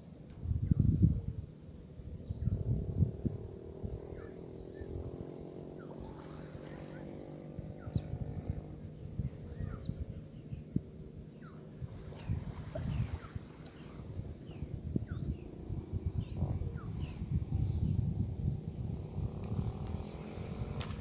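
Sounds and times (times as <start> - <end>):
distant boat engine humming: 0.0 - 21.0
water sloshing: 5.6 - 7.7, 11.6 - 14.8.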